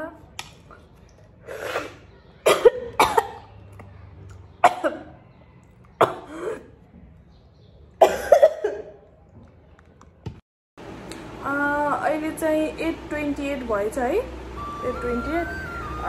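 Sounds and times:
woman coughing: 0:01.7 - 0:03.4, 0:04.6 - 0:05.1, 0:06.0 - 0:06.8, 0:08.0 - 0:09.0.

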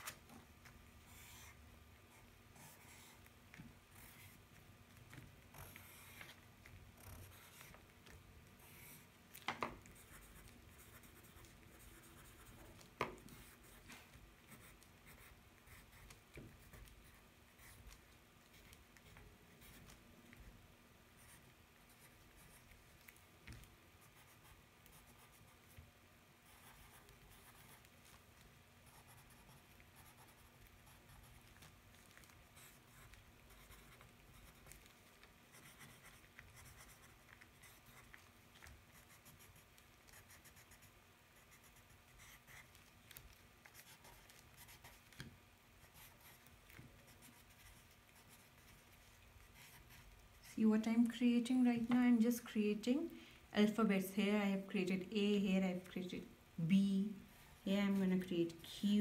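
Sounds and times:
pen scratching on paper: 0:01.1 - 0:03.2, 0:03.9 - 0:04.5, 0:05.1 - 0:06.4, 0:07.0 - 0:07.8, 0:08.6 - 0:09.1, 0:09.9 - 0:20.0, 0:21.2 - 0:22.8, 0:24.0 - 0:25.8, 0:26.4 - 0:28.2, 0:28.8 - 0:38.3, 0:38.9 - 0:45.2, 0:45.8 - 0:50.6.

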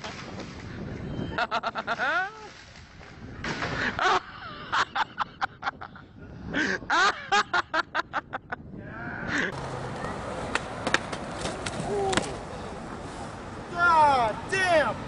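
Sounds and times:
skateboard rolling on concrete: 0:00.0 - 0:03.8, 0:09.4 - 0:14.4
person cackling laugh: 0:01.3 - 0:02.5, 0:03.8 - 0:08.6
skateboard clicks: 0:09.5 - 0:12.4.

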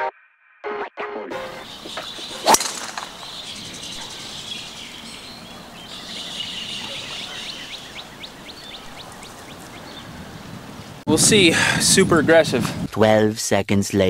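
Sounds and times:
birds chirping: 0:01.3 - 0:11.0
golf club striking ball: 0:01.6 - 0:06.0.

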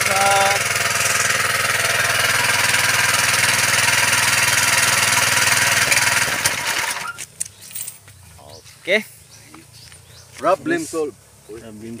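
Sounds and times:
sprayer engine and pump running: 0:00.0 - 0:07.3.

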